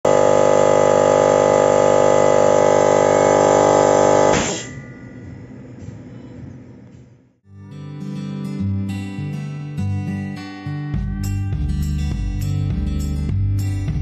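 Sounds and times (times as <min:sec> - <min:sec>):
air compressor humming: 0:00.0 - 0:06.2.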